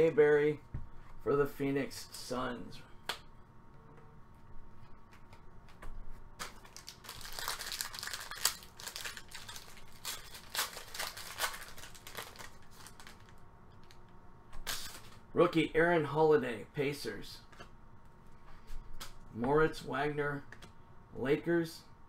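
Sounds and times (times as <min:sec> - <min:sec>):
foil wrapper crinkling and tearing: 0:06.4 - 0:14.0.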